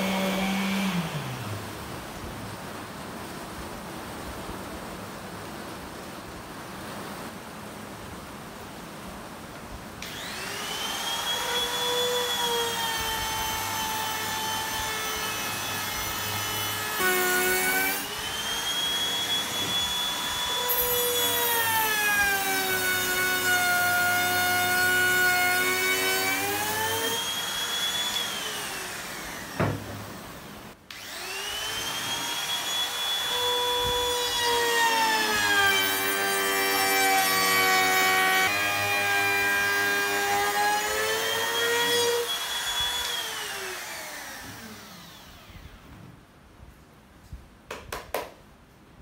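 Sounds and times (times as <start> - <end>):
trim router whining: 0.0 - 1.7, 10.0 - 30.2, 30.9 - 45.8.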